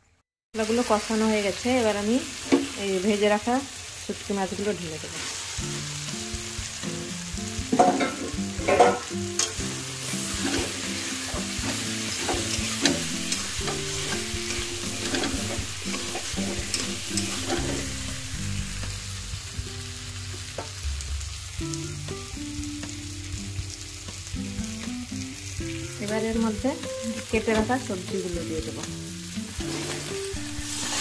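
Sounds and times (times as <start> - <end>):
hot oil sizzling: 0.6 - 31.0
spatula scraping metal pan: 10.2 - 18.2, 29.7 - 31.0.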